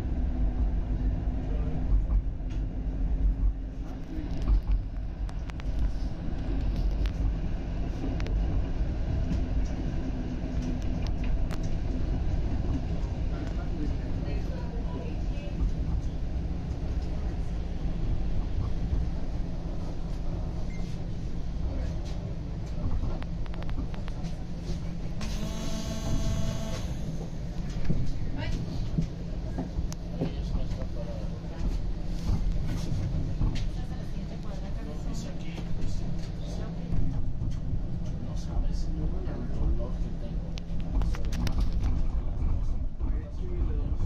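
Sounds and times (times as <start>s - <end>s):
streetcar rumbling on track: 0.0s - 25.6s, 26.7s - 44.0s.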